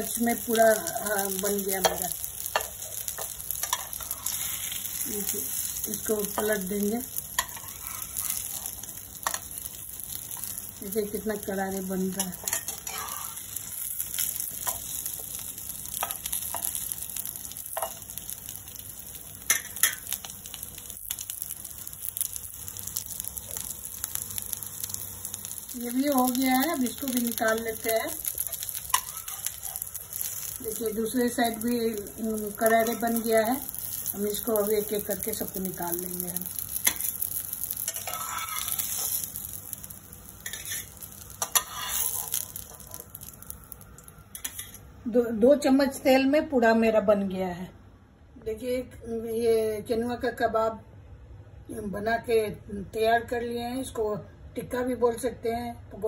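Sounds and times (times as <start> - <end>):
food sizzling in a pan: 0.0 - 46.0
steel spatula clicks and scrapes: 1.8 - 5.0, 7.4 - 9.7, 12.1 - 15.3, 15.9 - 16.9, 17.7 - 18.0, 27.4 - 30.5, 36.5 - 39.8, 40.4 - 43.4, 44.3 - 44.8
metal spatula scraping pan: 12.2 - 13.4, 37.9 - 39.2, 40.4 - 42.4.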